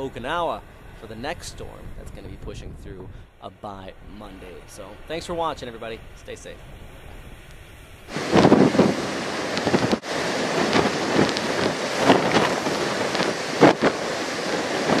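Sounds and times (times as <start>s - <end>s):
wind buffeting microphone: 0.0s - 15.0s
surf breaking over rocks: 8.1s - 15.0s.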